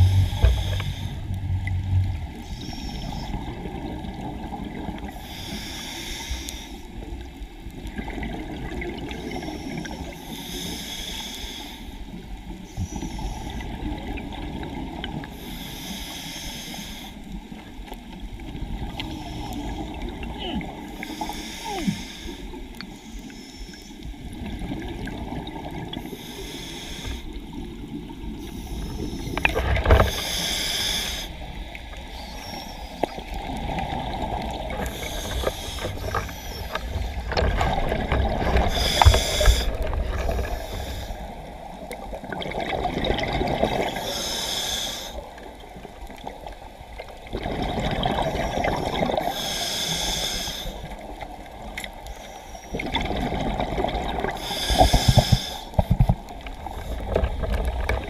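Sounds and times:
diver breathing underwater: 0.0 - 3.8, 5.0 - 6.9, 9.0 - 13.9, 15.3 - 17.3, 19.0 - 24.7, 25.6 - 27.6, 28.3 - 42.0, 43.4 - 45.5, 47.4 - 51.2, 52.0 - 57.9
steady water noise: 0.0 - 58.0.

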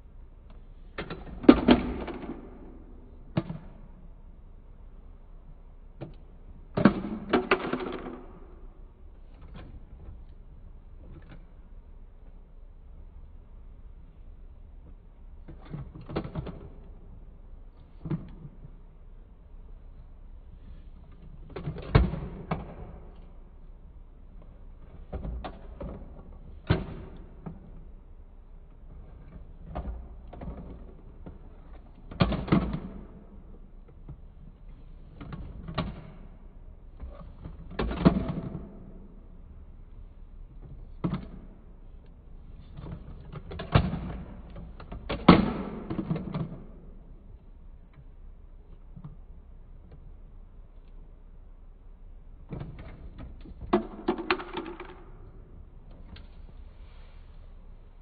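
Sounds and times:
plastic toy clacks and knocks: 0.5 - 4.1, 6.0 - 11.7, 14.8 - 18.8, 21.1 - 23.5, 24.3 - 28.1, 28.7 - 48.1, 52.4 - 56.5.

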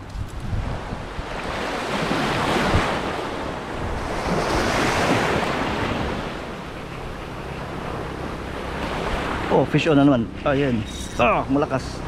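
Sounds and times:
waves washing over pebbles: 0.0 - 6.7
wind buffeting microphone: 0.0 - 11.2.

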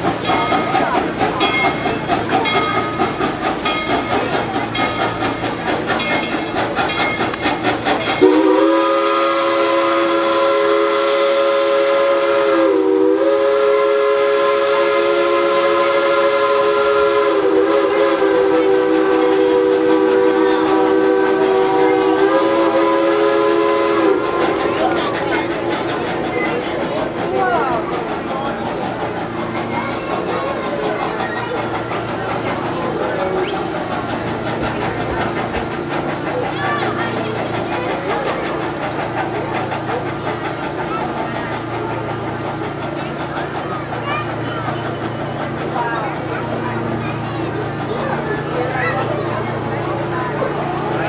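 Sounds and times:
steam locomotive chuffing: 0.0 - 51.0
locomotive chime whistle: 8.0 - 24.4.

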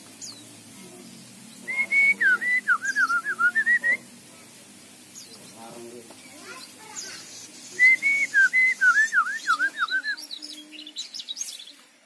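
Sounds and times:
bird whistled song: 1.5 - 4.1, 6.5 - 11.8
high thin bird chirps: 1.5 - 4.1, 5.1 - 11.8.

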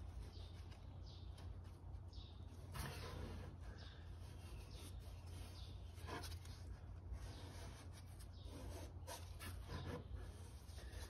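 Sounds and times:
gloved fingers scraping and rubbing: 0.0 - 11.0.

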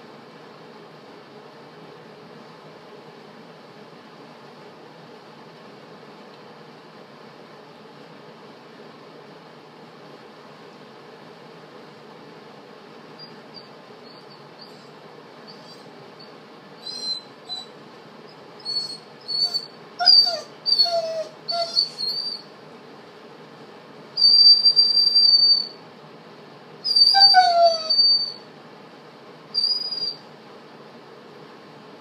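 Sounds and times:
dog whining: 13.2 - 22.5, 24.2 - 25.8, 26.8 - 28.4, 29.6 - 30.2.

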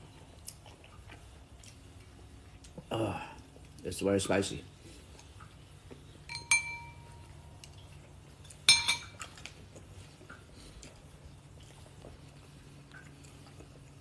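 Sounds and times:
metal spoon clinking on ceramic bowl: 6.3 - 7.2, 8.7 - 9.2.

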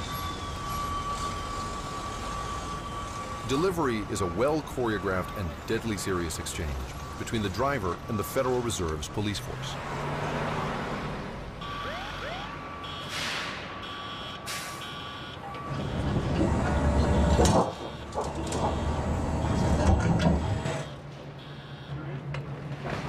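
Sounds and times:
truck engine rumbling: 0.0 - 23.0
warning beep: 11.6 - 16.0, 20.8 - 22.0.

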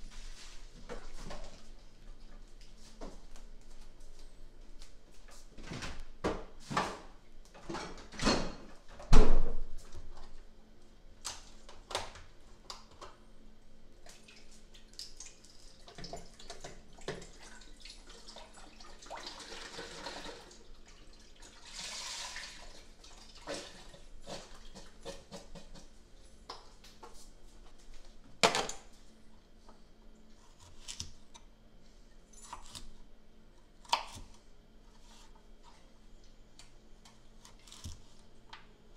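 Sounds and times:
stock pouring into pot: 21.5 - 22.8.

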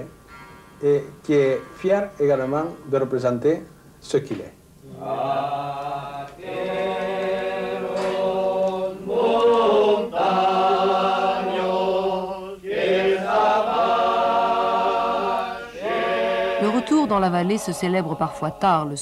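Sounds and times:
men singing a cappella: 4.8 - 18.9.

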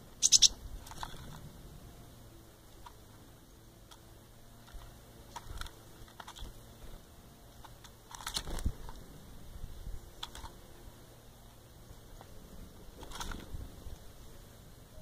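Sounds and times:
birds pecking in plastic bowl: 0.2 - 1.4, 3.8 - 9.0.

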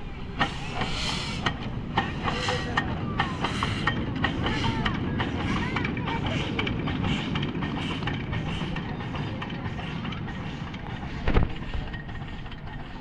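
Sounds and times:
toy train rumbling on rails: 0.0 - 13.0.

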